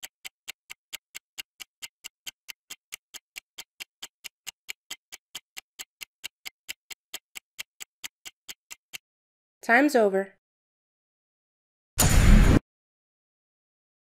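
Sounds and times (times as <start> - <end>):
fast clock-like ticking: 0.0 - 9.0.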